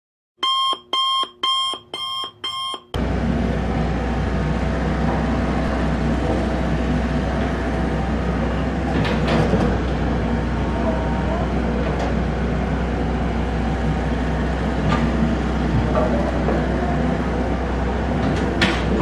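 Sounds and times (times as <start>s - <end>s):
short electronic beeps: 0.4s - 3.0s
excavator diesel engine running: 3.0s - 19.0s.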